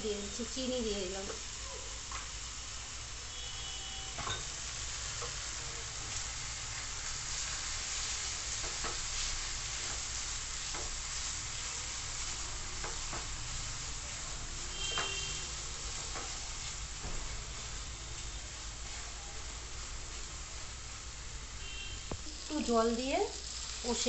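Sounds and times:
food sizzling in a frying pan: 0:00.0 - 0:24.0.

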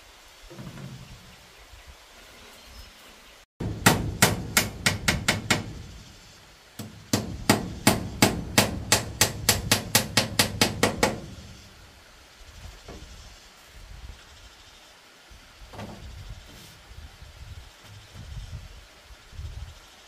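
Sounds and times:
hammer blows on bamboo: 0:03.6 - 0:11.7.

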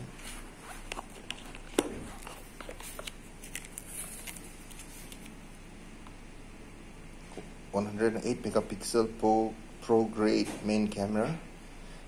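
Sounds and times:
box and plastic film rustling: 0:00.1 - 0:05.4.

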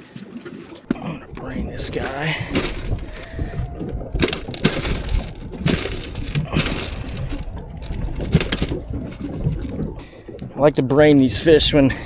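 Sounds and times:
crushed ice crunching and clinking: 0:00.9 - 0:09.9.

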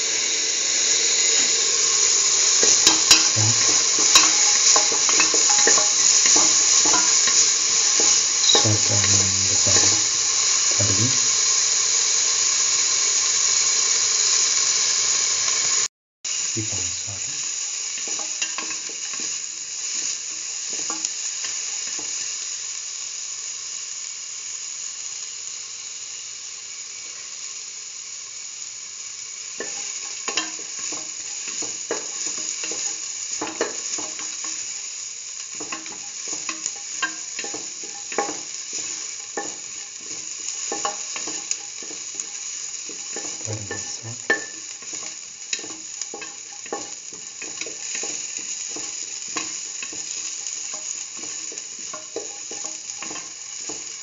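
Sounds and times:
onion and garlic sizzling in oil: 0:00.0 - 0:54.0
spatula scraping a pan: 0:35.5 - 0:54.0.

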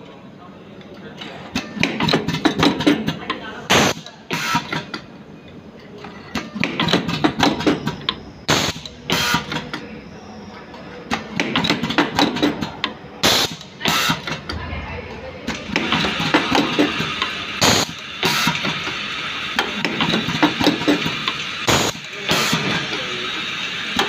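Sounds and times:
pneumatic air hisses: 0:08.5 - 0:09.5.

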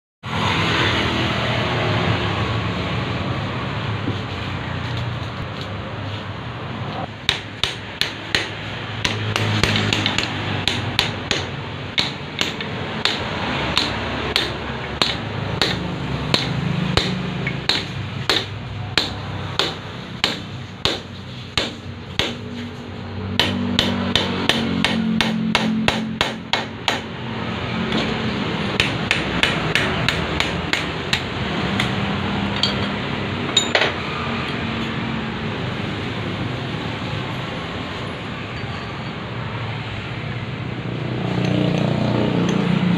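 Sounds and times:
steady background hum: 0:02.5 - 0:38.0
hammer striking metal: 0:07.2 - 0:22.7, 0:23.3 - 0:27.2, 0:27.8 - 0:34.9.

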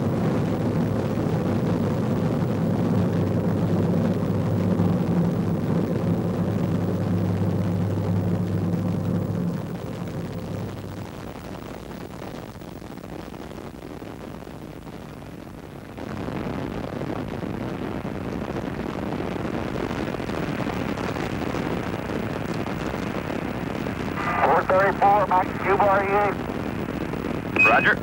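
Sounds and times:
distant rocket roar: 0:02.5 - 0:11.3, 0:24.1 - 0:26.5, 0:27.4 - 0:28.0.

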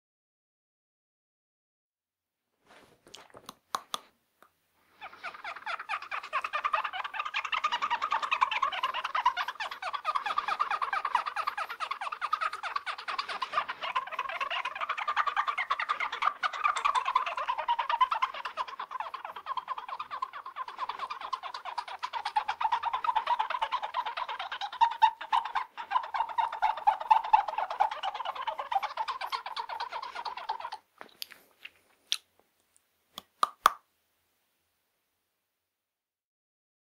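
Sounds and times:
fingers rubbing over teeth: 0:02.7 - 0:04.2, 0:04.9 - 0:32.3.

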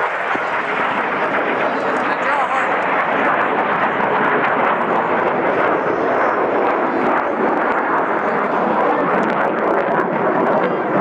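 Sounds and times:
jet engine rushing: 0:00.0 - 0:11.0.

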